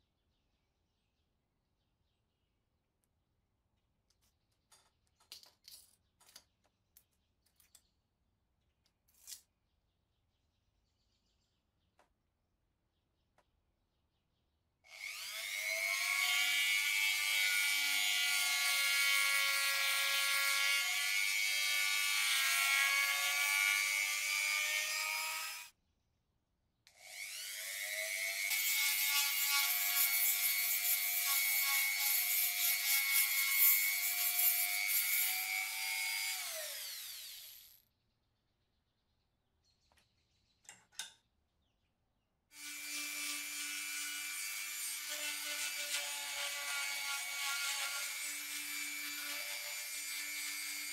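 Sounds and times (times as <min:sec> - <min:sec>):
rotary tool whining: 0:26.9 - 0:37.8.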